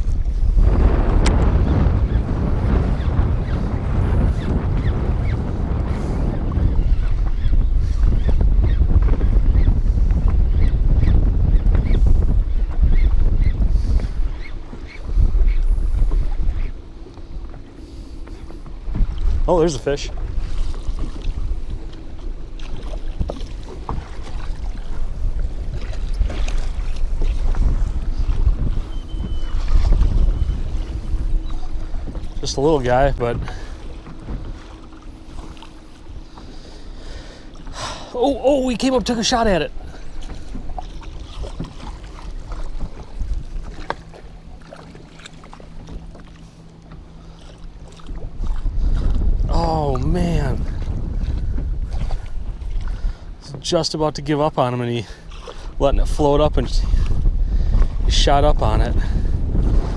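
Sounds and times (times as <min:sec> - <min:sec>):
water lapping against boat: 0:00.0 - 0:59.9
wind rumbling on microphone: 0:00.0 - 0:59.9.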